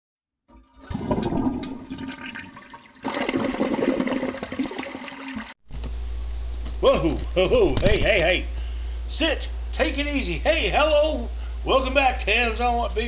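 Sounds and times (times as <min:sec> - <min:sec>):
rushing gurgling water: 0:00.7 - 0:05.6.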